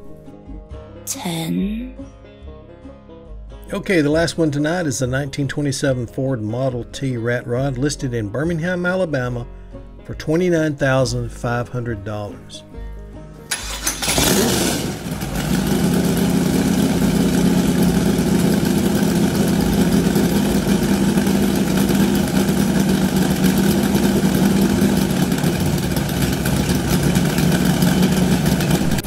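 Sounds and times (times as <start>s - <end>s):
car engine idling: 13.5s - 29.0s.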